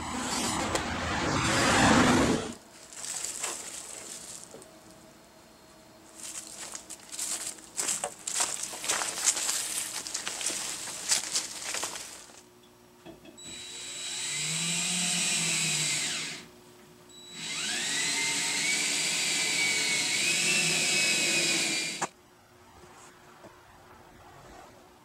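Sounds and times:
power drill whining: 0.0 - 2.6, 13.4 - 16.5, 17.3 - 22.1.

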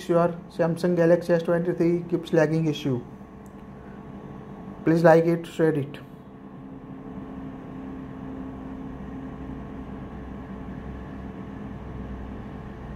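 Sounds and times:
low background hum: 0.0 - 12.9.

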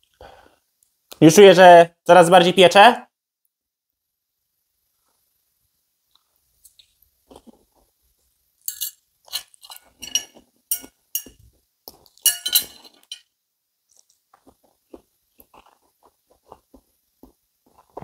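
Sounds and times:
cutlery clinking on plate: 8.6 - 11.5, 12.2 - 13.3.

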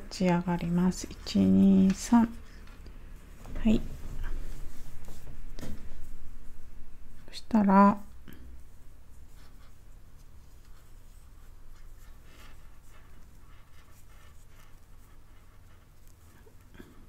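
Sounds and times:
crochet hook scratching yarn: 9.2 - 16.7.

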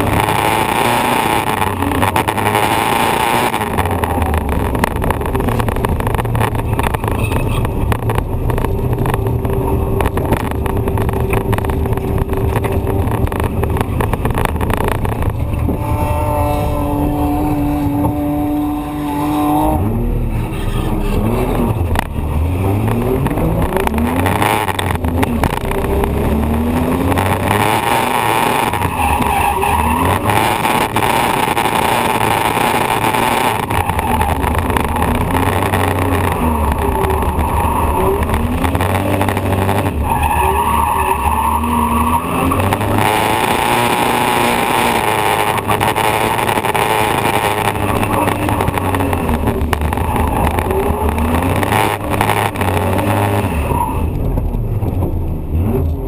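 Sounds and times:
wind noise: 0.0 - 20.0
car engine revving: 0.0 - 56.0
tyre noise: 0.0 - 56.0.

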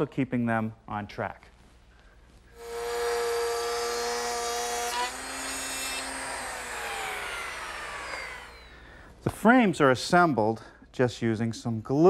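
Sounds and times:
router whining and spinning down: 2.6 - 9.0.

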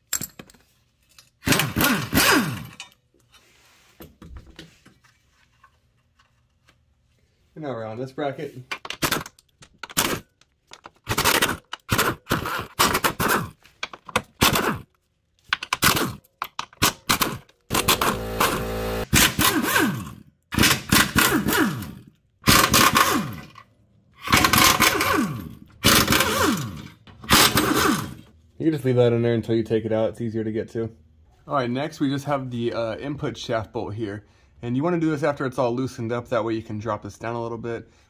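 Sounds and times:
air impact wrench hammering: 17.1 - 23.5, 24.2 - 28.2.

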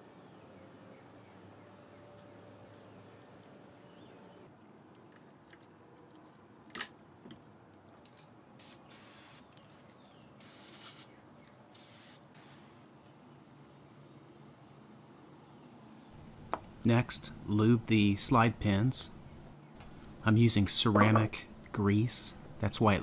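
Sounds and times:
aerosol spray can hissing: 10.4 - 11.1.

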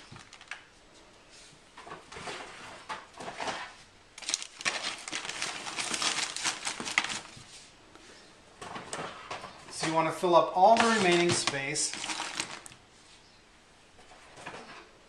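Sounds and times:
packing paper rustling: 0.0 - 0.7, 2.2 - 7.7, 9.8 - 12.8
plastic cases clicking together: 4.2 - 7.3, 10.6 - 12.8.

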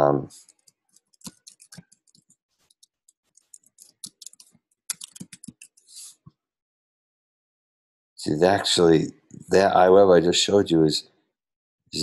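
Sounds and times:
typing on keyboard: 0.4 - 5.9.

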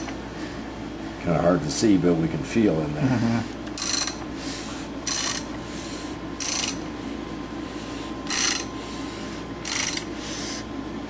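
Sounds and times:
crankshaft turning mechanical rasps: 3.8 - 4.2, 5.0 - 5.5, 6.4 - 6.8, 8.2 - 8.7, 9.6 - 10.1.

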